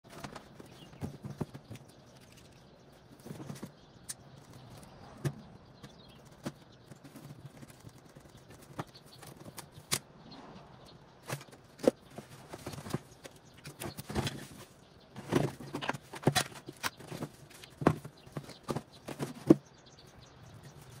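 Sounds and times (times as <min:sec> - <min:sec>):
cardboard rustling: 0:00.1 - 0:05.4, 0:11.2 - 0:19.6.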